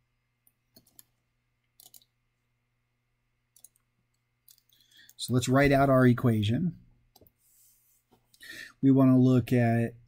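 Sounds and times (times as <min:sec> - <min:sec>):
mouse and keyboard clicks: 0:01.8 - 0:02.1.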